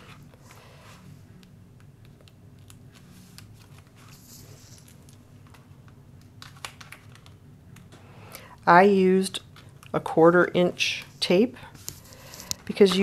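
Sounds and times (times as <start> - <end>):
paper rustling: 2.9 - 5.6
soft scratchy rustle: 3.0 - 5.1.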